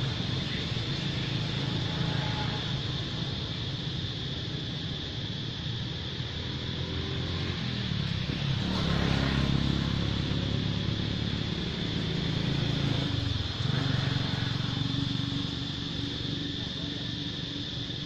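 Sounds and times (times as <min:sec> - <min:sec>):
vehicle engine humming: 0:00.0 - 0:18.0.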